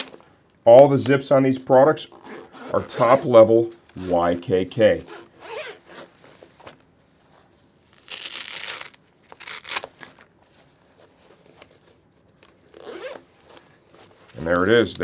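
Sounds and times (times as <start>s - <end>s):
zipper rasping: 2.1s - 3.4s, 5.0s - 6.5s, 12.7s - 14.2s
fabric handling: 5.0s - 15.0s.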